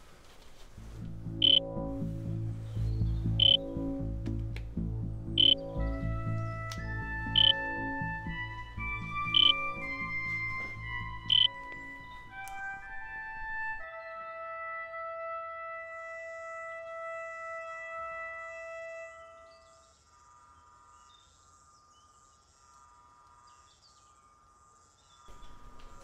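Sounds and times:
music of long held notes: 0:00.7 - 0:19.9.

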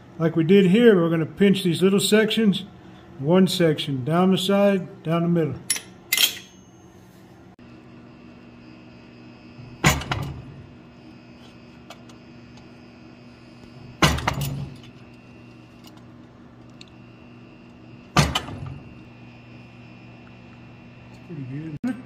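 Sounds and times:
steady background hum: 0:00.0 - 0:22.0
metallic ring: 0:05.7 - 0:07.2.

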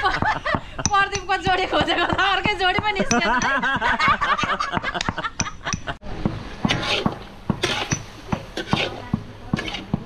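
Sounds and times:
spatula knocking in wok: 0:00.2 - 0:10.0
spatula scraping wok: 0:06.3 - 0:10.0.

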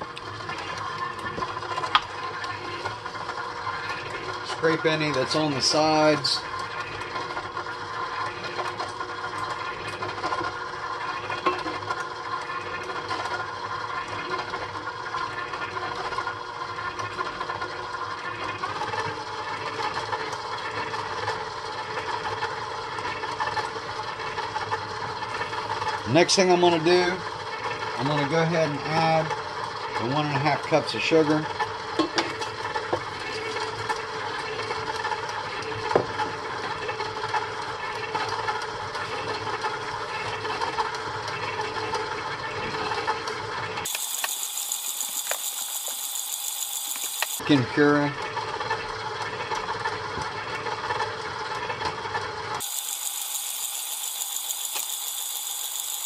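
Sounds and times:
stand mixer running: 0:00.0 - 0:56.0
stand mixer motor running: 0:36.4 - 0:47.5, 0:48.2 - 0:56.0.

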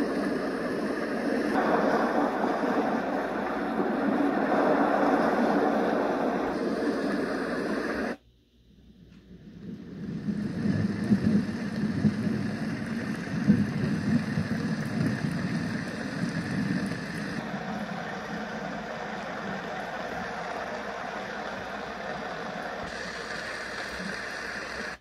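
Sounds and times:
steady rushing noise: 0:00.0 - 0:08.2, 0:09.5 - 0:25.0.

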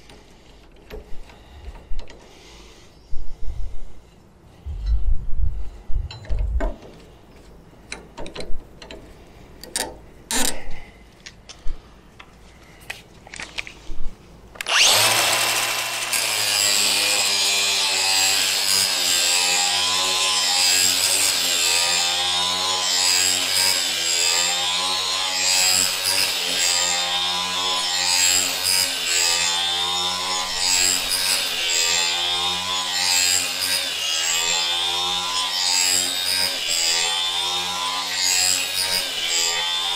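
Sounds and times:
angle grinder grinding steel: 0:14.6 - 0:39.9.

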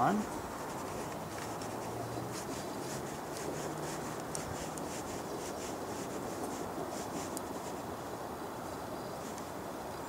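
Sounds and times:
steady background hiss: 0:00.0 - 0:10.0
hands rubbing and clicking parts: 0:00.2 - 0:07.8.

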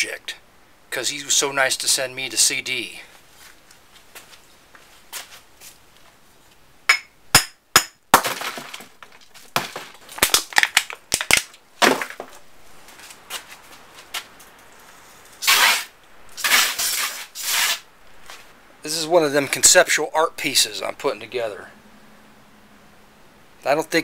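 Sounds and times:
hammer tapping glass bulb: 0:06.9 - 0:08.0.

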